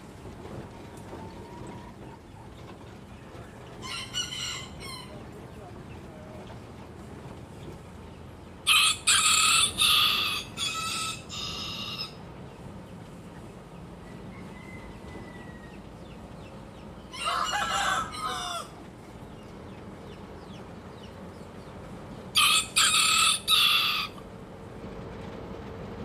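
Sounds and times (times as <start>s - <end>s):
rooster crowing: 3.8s - 5.2s, 8.6s - 12.2s, 14.0s - 16.1s, 17.0s - 18.8s, 22.3s - 24.2s.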